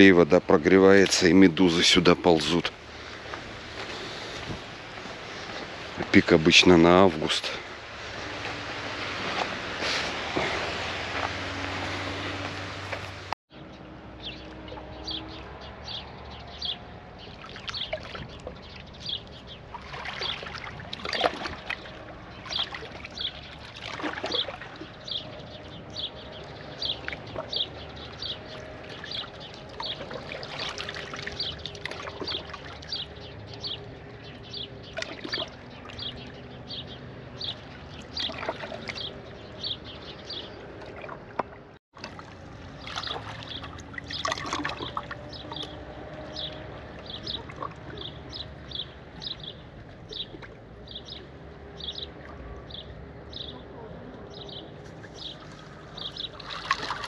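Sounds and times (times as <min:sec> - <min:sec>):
small waves lapping on pier: 0:00.0 - 0:57.0
bird chirping: 0:42.8 - 0:57.0.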